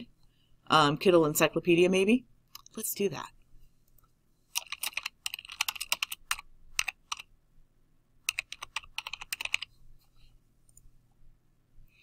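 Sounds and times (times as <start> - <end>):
keyboard typing: 4.5 - 7.3, 8.3 - 9.7.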